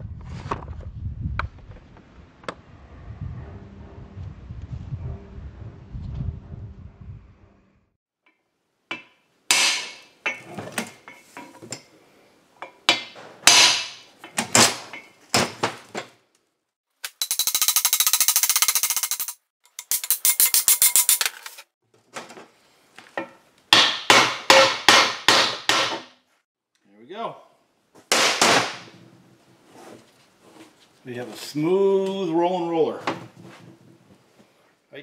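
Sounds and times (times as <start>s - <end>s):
hammer striking steel: 8.9s - 10.4s, 12.9s - 14.1s, 23.8s - 26.1s.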